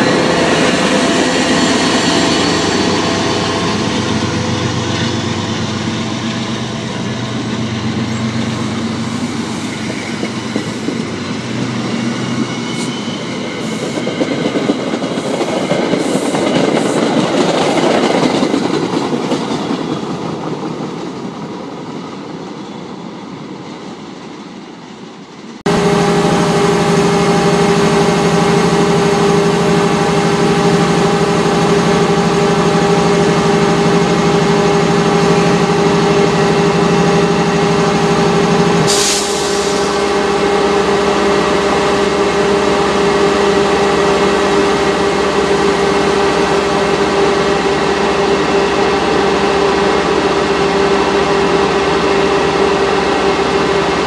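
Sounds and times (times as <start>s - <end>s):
locomotive humming: 0.0s - 54.0s
air hiss: 38.9s - 40.0s.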